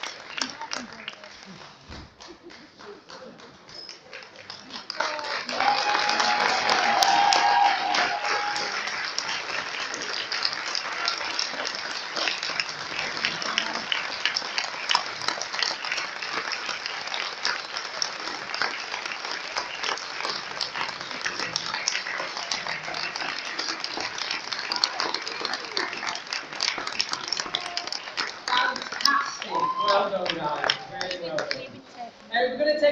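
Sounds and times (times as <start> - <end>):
audience applauding: 0.0 - 32.0
voices: 18.2 - 32.9.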